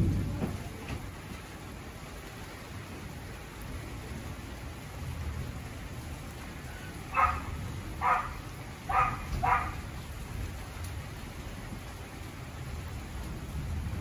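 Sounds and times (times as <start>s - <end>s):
distant thunder rumble: 0.0s - 3.1s, 3.7s - 14.0s
heavy rain falling: 0.0s - 14.0s
dog barking: 7.1s - 9.9s.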